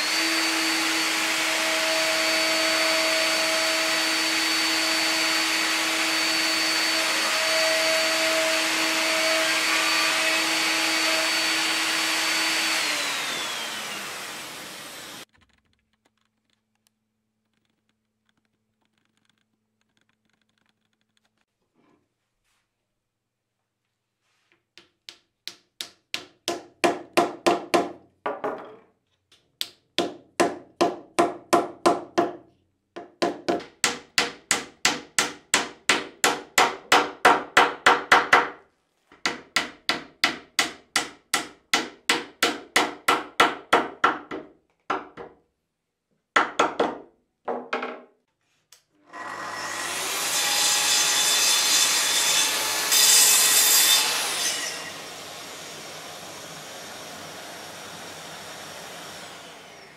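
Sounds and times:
track saw cutting wood: 0.0 - 15.3, 49.1 - 59.9.

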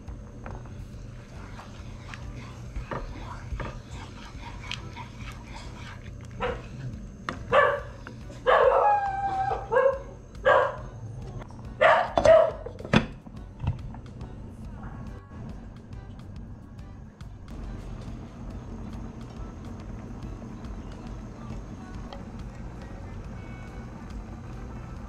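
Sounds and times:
dog barking: 6.4 - 6.7, 7.5 - 10.9, 11.8 - 12.7.

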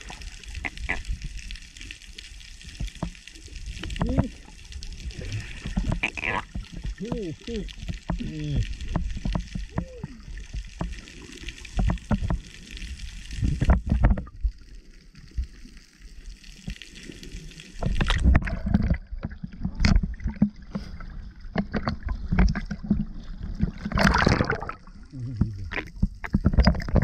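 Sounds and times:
rush of bubbles: 0.0 - 1.8, 2.7 - 14.4, 16.8 - 27.0
water splashing: 0.0 - 27.0
muffled underwater knocks: 5.7 - 10.0, 11.7 - 12.4, 21.5 - 24.8.

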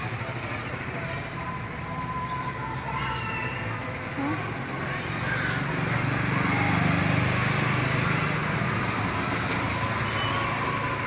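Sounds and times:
small motorcycle engine running: 4.2 - 11.0.

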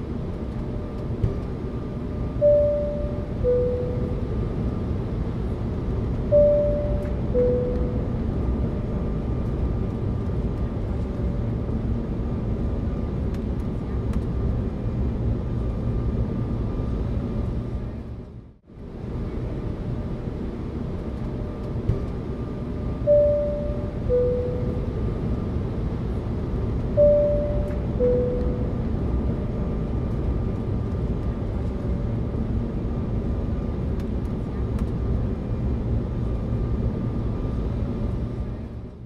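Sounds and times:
airliner cabin drone: 0.0 - 39.0
two-note seat belt chime: 2.4 - 4.2, 6.3 - 8.1, 23.1 - 24.9, 27.0 - 28.8.

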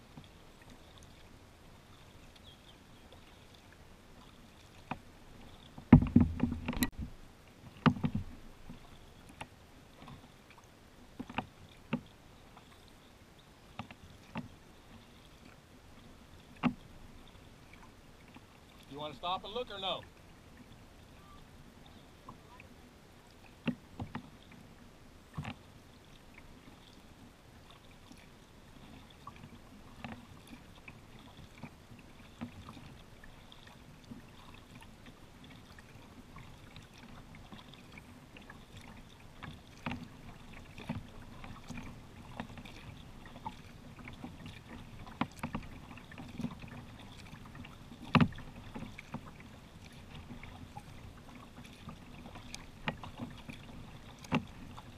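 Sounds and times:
paddle strokes in water: 0.0 - 54.9
sharp knocks and clicks: 5.9 - 7.1.

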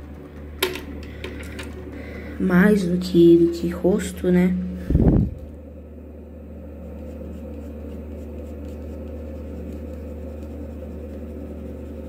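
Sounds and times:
steady low hum: 0.0 - 12.0
pencil scratching on paper: 6.8 - 12.0.

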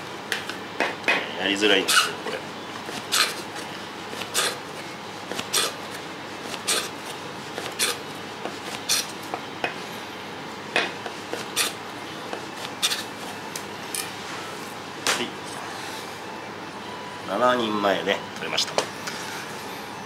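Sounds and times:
knife scraping through meat: 3.0 - 3.5, 4.2 - 4.6, 5.4 - 5.8, 6.4 - 7.0, 7.6 - 8.0, 11.4 - 11.8.

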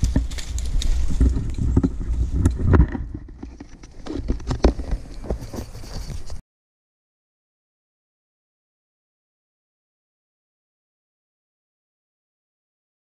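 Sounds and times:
climbing gear clicking: 0.0 - 6.4.

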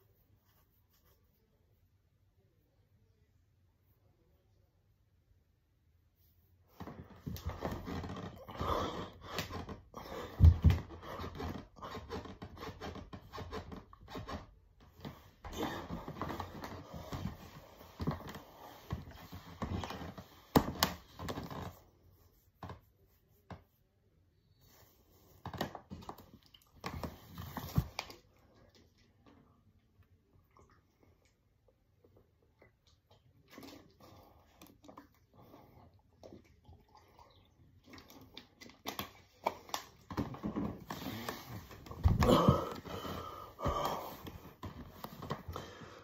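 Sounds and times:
man panting: 42.1 - 44.6.

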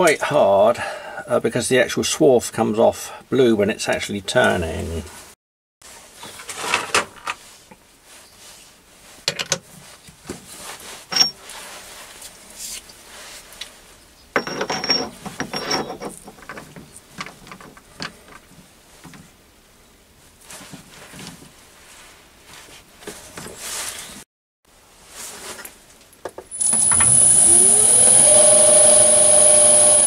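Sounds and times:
metal clinks and scraping: 11.1 - 11.4, 14.4 - 16.6.

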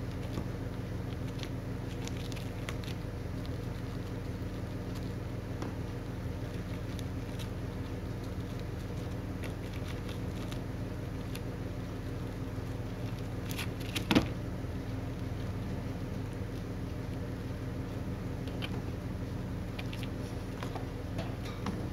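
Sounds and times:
hamster gnawing corn: 0.0 - 21.8.

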